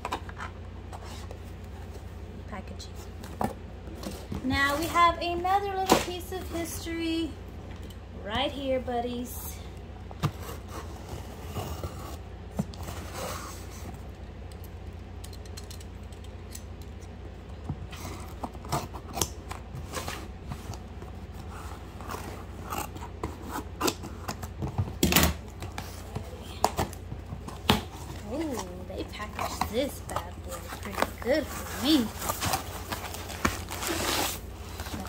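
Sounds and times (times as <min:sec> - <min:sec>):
packing rustling: 0:28.0 - 0:35.0.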